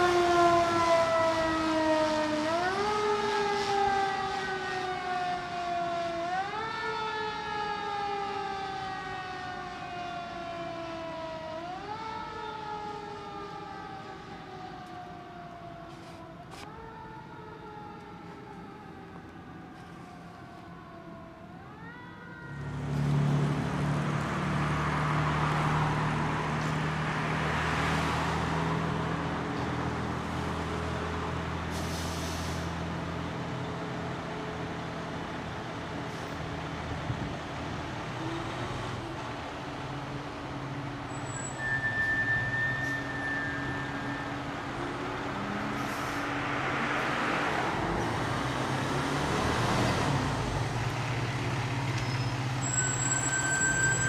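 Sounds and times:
siren gliding down: 0.0s - 23.4s, 41.2s - 51.0s
fire engine diesel engine: 0.0s - 54.0s.

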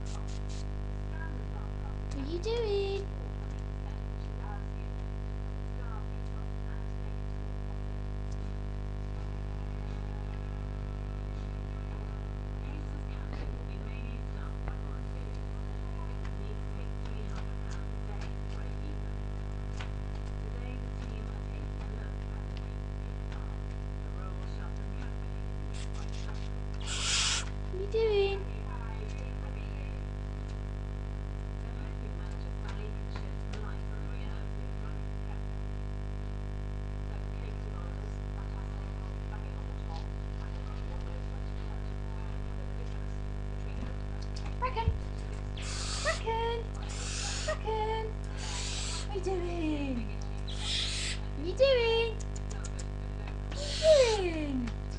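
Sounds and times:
faint scratches and clicks: 0.0s - 0.7s, 19.4s - 27.6s, 52.2s - 53.7s
low electrical hum: 0.0s - 54.9s.

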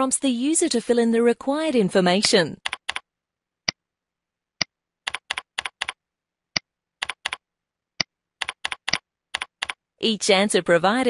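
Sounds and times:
keyboard typing: 2.2s - 3.8s, 4.6s - 7.4s, 8.0s - 9.8s.

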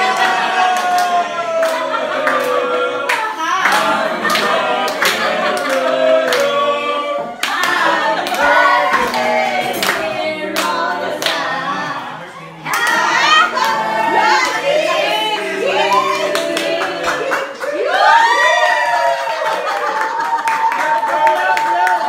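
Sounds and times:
group of people singing: 0.0s - 18.4s
people clapping in time: 16.0s - 22.0s.

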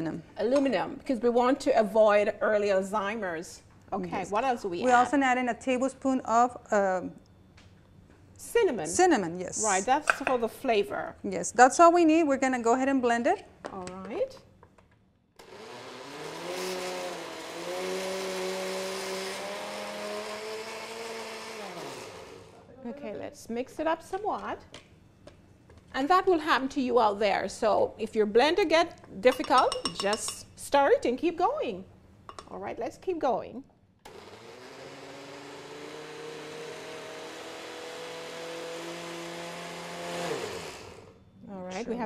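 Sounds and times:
blender motor running: 15.4s - 22.6s, 34.0s - 41.2s.

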